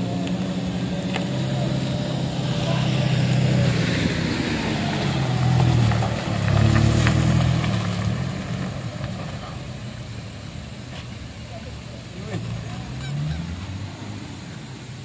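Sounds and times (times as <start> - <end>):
vehicle passing on gravel: 0.0 - 15.0.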